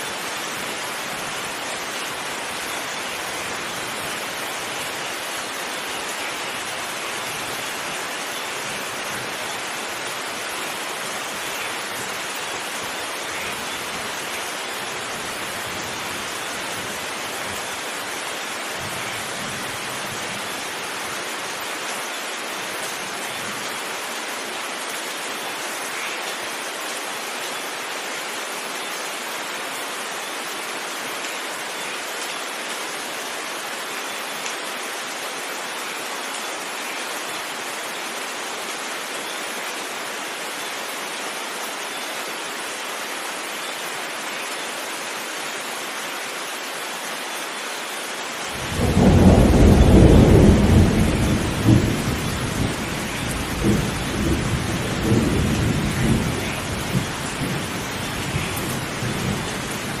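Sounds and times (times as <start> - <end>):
heavy rain falling: 0.0 - 60.0
thunder rumbling: 48.6 - 57.6.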